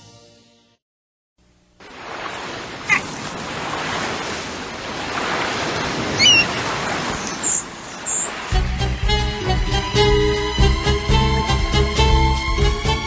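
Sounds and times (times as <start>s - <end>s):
ocean surf washing: 1.8s - 9.5s
short high downward calls: 6.2s - 6.5s.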